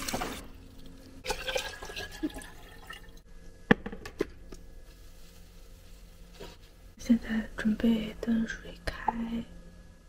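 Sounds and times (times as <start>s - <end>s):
water running into a ceramic mug: 1.2s - 3.2s.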